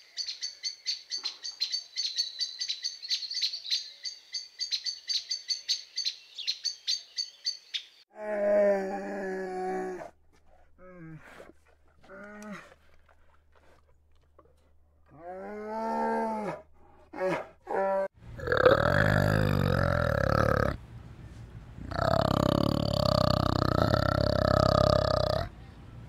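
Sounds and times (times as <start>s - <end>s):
orangutan deep rough call: 15.2s - 20.8s, 21.8s - 25.5s.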